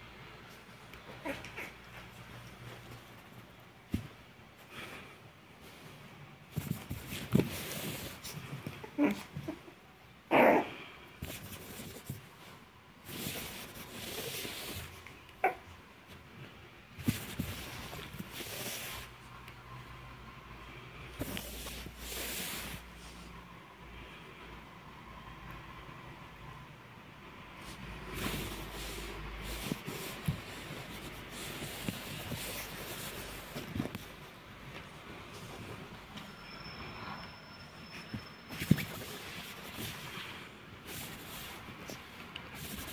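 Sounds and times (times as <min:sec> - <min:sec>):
fabric rustling: 0:00.4 - 0:09.6, 0:11.1 - 0:19.4, 0:21.0 - 0:23.3, 0:27.6 - 0:36.4, 0:37.9 - 0:42.9.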